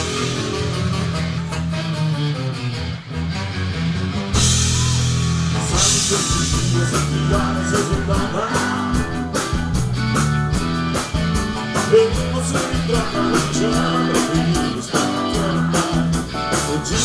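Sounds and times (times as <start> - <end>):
live rock band playing: 0.0 - 17.0
man singing lead vocal: 5.6 - 9.4, 11.7 - 17.0.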